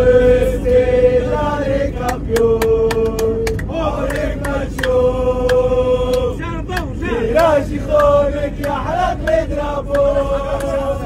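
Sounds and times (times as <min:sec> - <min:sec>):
airliner cabin drone: 0:00.0 - 0:11.0
crowd chanting in unison: 0:00.0 - 0:11.0
hand claps in time: 0:02.1 - 0:10.8.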